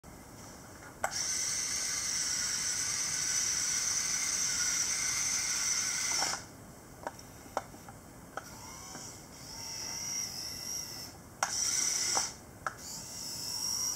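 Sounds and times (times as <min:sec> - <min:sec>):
toy electric motors whining: 0:01.0 - 0:06.5, 0:08.4 - 0:13.9.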